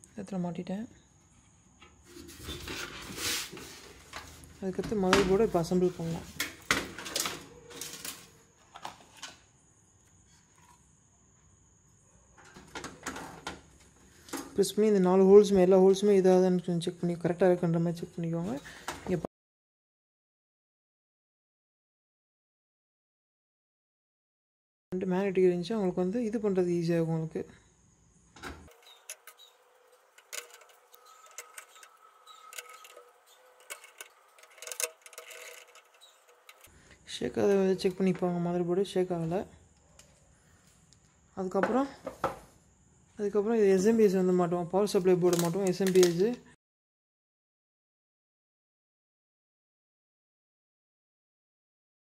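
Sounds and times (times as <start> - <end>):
motherboard clicking and scraping in case: 28.7 - 36.8.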